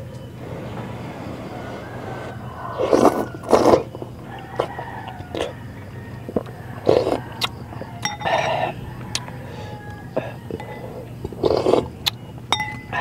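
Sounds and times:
slurping broth: 0:00.4 - 0:05.6, 0:06.2 - 0:12.2
metal spoon clinking on glass bowl: 0:08.0 - 0:08.6, 0:12.5 - 0:13.0.

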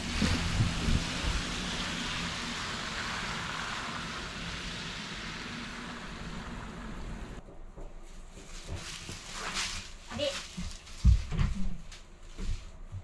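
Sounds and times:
tyres hissing on wet asphalt: 0:00.0 - 0:07.4
low engine rumble: 0:00.0 - 0:07.7.

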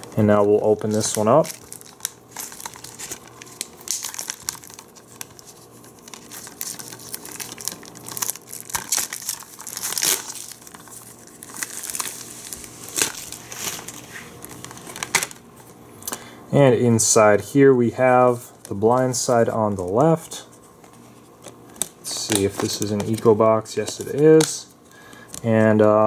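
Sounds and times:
plastic shrink-wrap crinkling: 0:00.6 - 0:15.4, 0:18.4 - 0:26.0.

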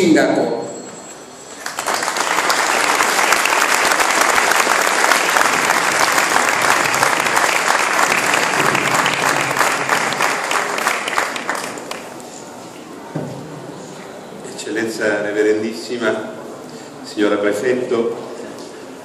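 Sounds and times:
crowd applauding: 0:01.5 - 0:12.2.

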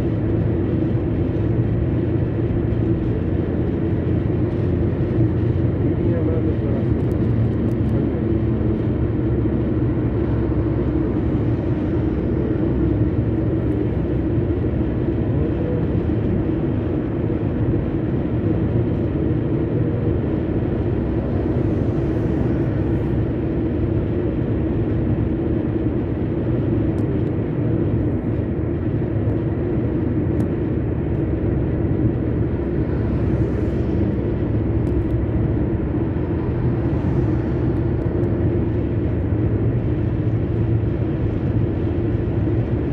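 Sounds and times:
car road and engine noise: 0:00.0 - 0:42.9.

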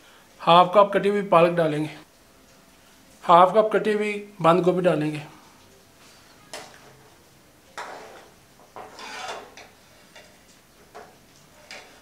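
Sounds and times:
spoon scraping pot: 0:07.8 - 0:12.0.

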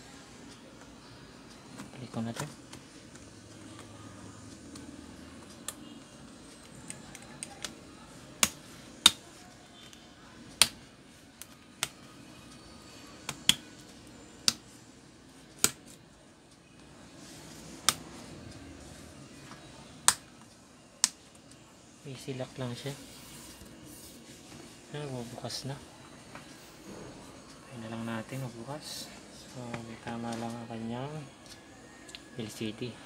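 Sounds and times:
laptop keys clicking: 0:06.5 - 0:07.8.

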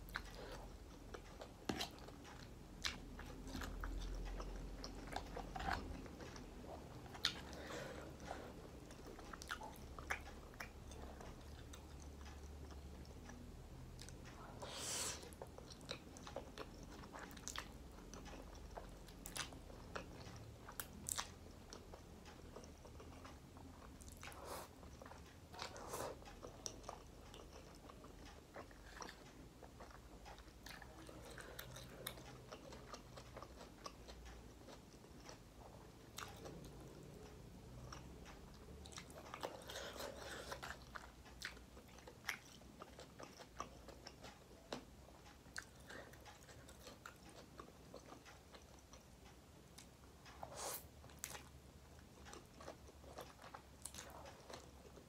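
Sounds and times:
chewing and slurping noodles: 0:00.1 - 0:13.3, 0:21.9 - 0:36.9.

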